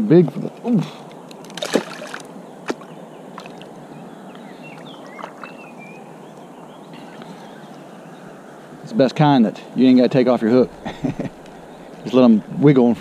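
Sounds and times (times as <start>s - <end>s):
river water rushing: 1.4s - 8.9s
faint bird chirps: 2.6s - 8.7s.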